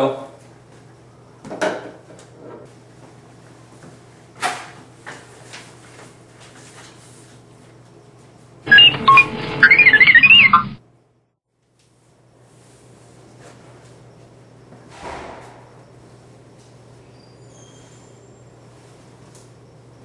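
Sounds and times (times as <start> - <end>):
warbling beeping electronic effect: 8.7 - 10.8.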